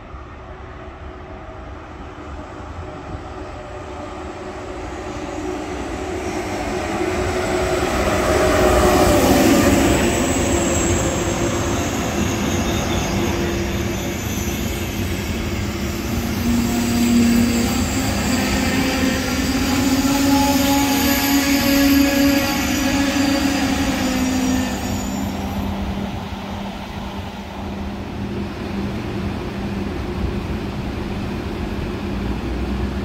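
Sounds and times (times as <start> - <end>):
high-speed train passing: 0.0 - 33.0
train whine dropping in pitch: 4.3 - 27.0.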